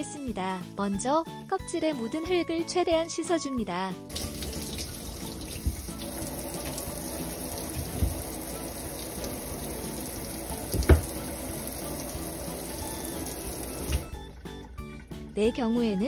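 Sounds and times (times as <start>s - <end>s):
tap running into steel sink: 4.1s - 14.1s
dull knocks: 7.6s - 8.4s, 10.7s - 11.2s.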